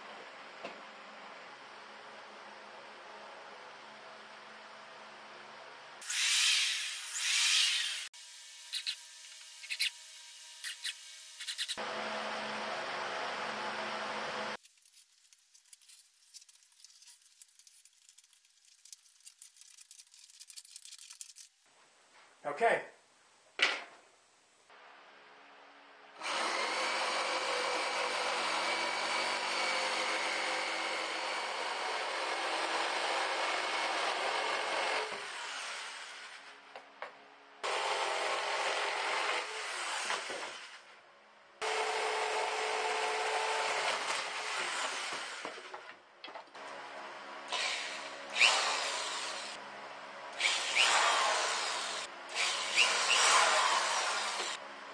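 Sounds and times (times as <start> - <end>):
faint rubbing and scratching: 14.6 - 21.6
jigsaw cutting wood: 26.2 - 36.4, 37.6 - 40.8, 41.6 - 45.7, 47.5 - 49.6, 50.4 - 54.6
cordless drill driving screws: 47.5 - 49.5, 50.4 - 54.6.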